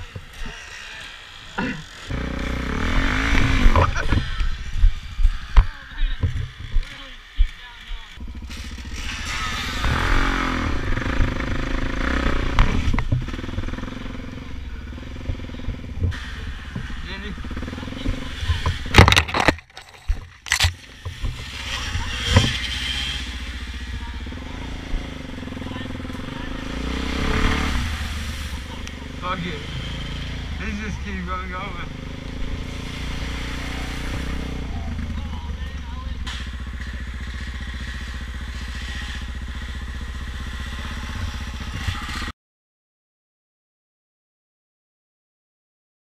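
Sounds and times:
motorbike engine running: 0.0s - 42.3s
water splashing: 27.5s - 28.9s.

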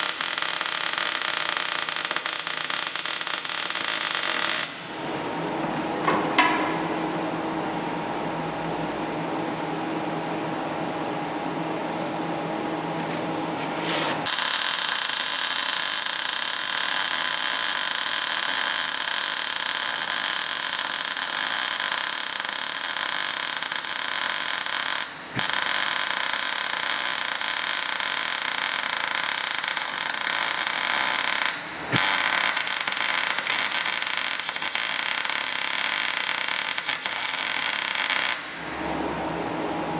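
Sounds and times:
welding arc crackling and hissing: 0.0s - 4.9s, 13.8s - 38.5s
welder low hum: 0.0s - 6.2s, 6.8s - 39.9s.

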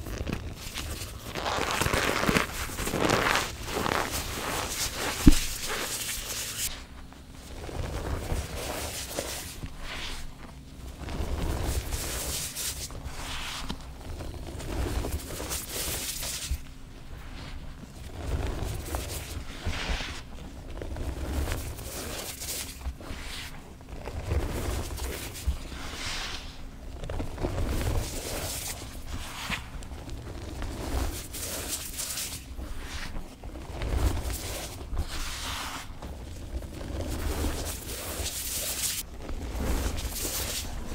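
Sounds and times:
hands crushing chalk: 0.0s - 6.8s, 27.4s - 33.1s, 33.8s - 40.9s.

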